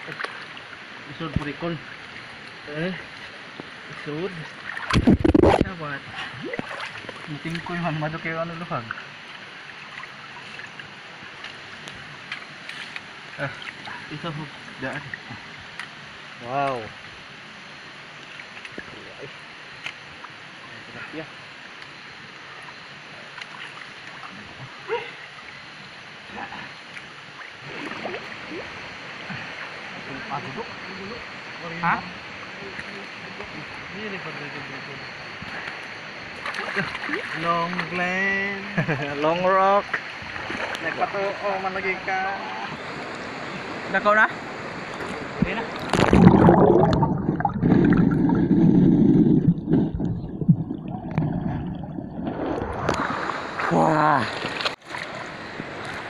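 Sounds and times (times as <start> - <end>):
muffled underwater sloshing: 0.0 - 15.9, 22.4 - 34.0, 39.2 - 56.0.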